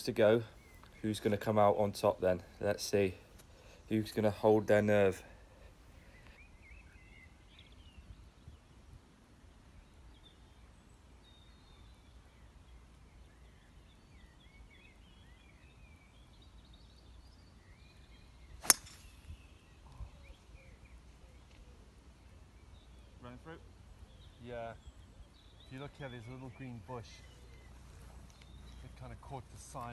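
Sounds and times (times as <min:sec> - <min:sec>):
golf club striking ball: 0:18.6 - 0:19.3.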